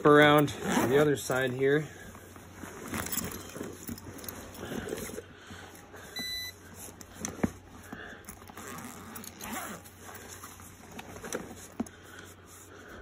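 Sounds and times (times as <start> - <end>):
tool bag rustling: 0.0 - 13.0
short high beep: 6.2 - 6.6.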